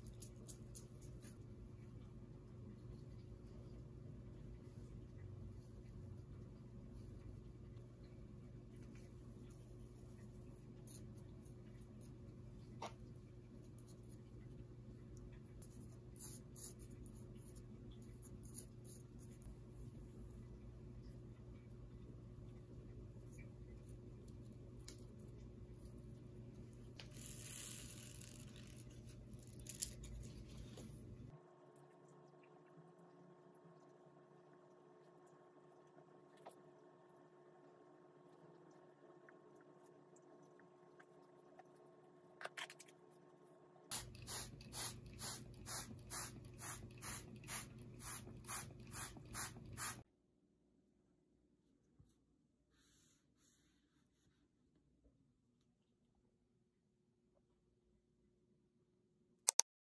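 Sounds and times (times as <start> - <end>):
spray bottle squirting: 43.9 - 50.0.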